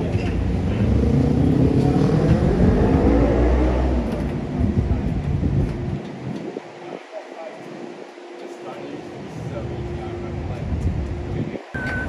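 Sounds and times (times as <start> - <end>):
vehicle engine accelerating: 0.0 - 6.0.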